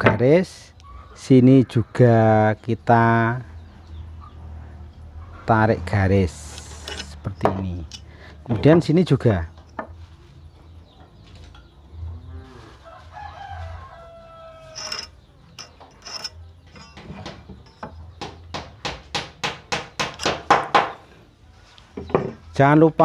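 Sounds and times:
faint animal call: 12.1s - 13.0s.

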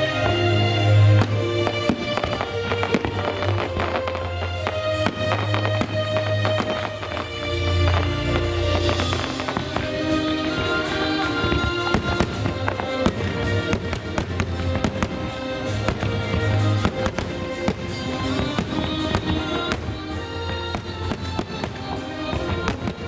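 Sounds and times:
fireworks bangs and crackles: 0.0s - 23.0s
music: 0.0s - 23.0s.

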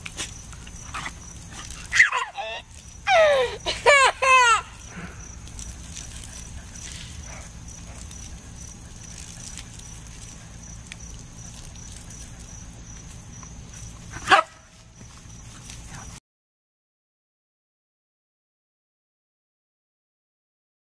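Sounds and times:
dog barking sharply: 14.2s - 14.6s.

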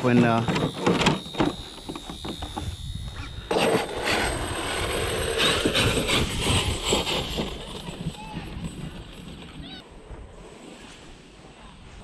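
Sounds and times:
rc truck motor and tyres: 0.0s - 9.8s.

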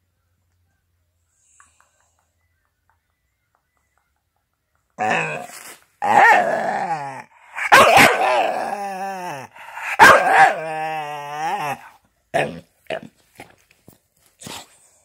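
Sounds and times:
dog yowling: 5.0s - 12.6s
dog yipping: 7.6s - 8.3s, 10.0s - 10.6s.

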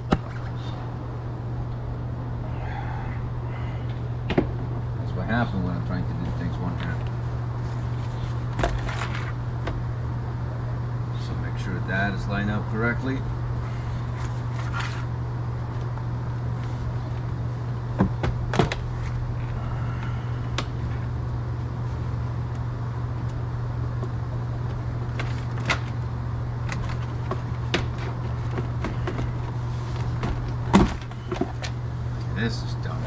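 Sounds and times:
steady low hum: 0.0s - 33.0s.

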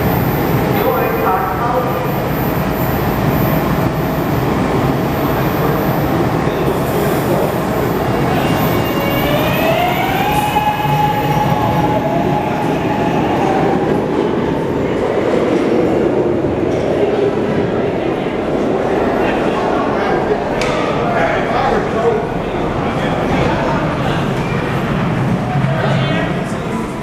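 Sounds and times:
subway train wheels rumbling: 0.0s - 27.0s.

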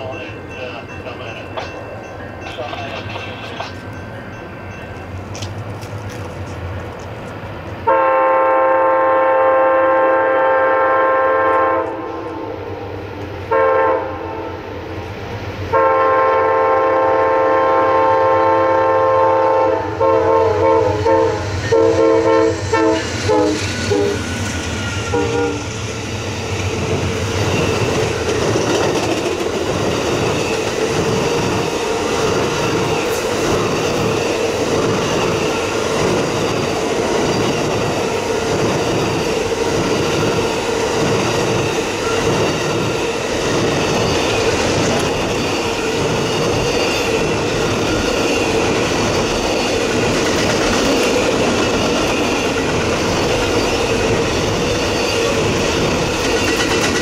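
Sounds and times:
train rumbling past: 0.0s - 57.0s
train air horn blasts: 7.8s - 12.9s, 13.5s - 14.6s, 15.7s - 24.2s, 25.0s - 25.7s
wheels clattering over rail joints: 26.9s - 57.0s.

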